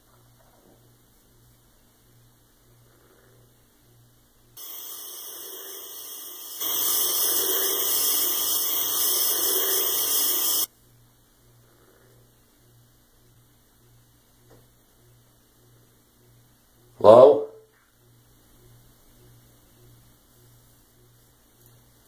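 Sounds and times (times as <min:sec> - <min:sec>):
steady hiss: 0:04.5 - 0:10.7.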